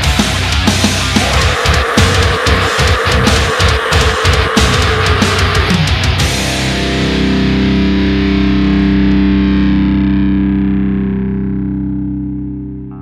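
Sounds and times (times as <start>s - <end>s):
drums: 0.0s - 9.7s
distorted electric guitar chord ringing: 0.3s - 13.0s.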